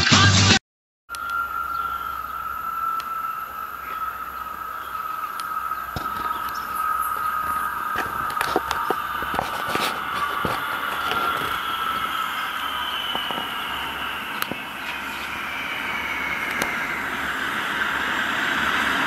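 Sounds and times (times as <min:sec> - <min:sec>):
train high-pitched whine: 0:01.1 - 0:19.0
scattered clicks: 0:02.9 - 0:03.2, 0:03.8 - 0:15.4, 0:16.4 - 0:17.0.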